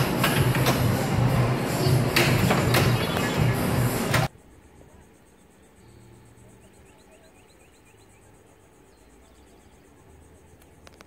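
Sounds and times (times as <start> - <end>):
pulsing insect trill: 4.3 - 11.0.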